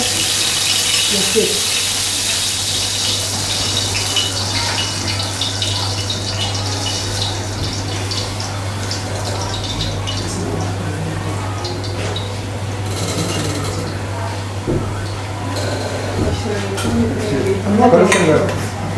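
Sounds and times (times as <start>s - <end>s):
oil sizzling in a grill pan: 0.0s - 10.4s.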